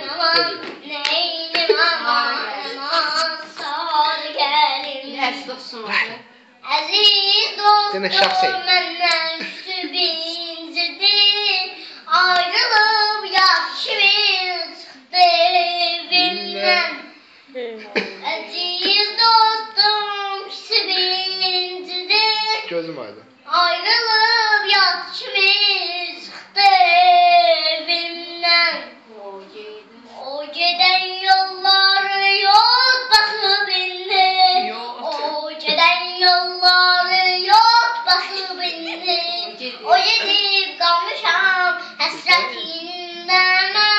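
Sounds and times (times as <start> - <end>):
girl singing unaccompanied: 0.0 - 22.7, 23.4 - 43.9
girl breathing: 2.5 - 3.0, 41.8 - 42.0.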